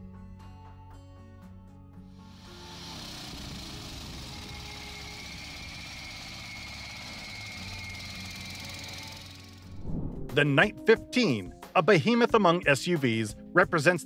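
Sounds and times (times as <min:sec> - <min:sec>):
vehicle engine running: 0:02.2 - 0:09.8
high whine: 0:02.4 - 0:10.4.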